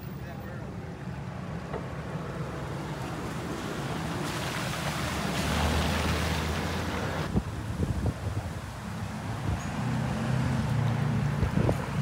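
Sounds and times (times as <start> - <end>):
tyres splashing through water: 1.4 - 12.0.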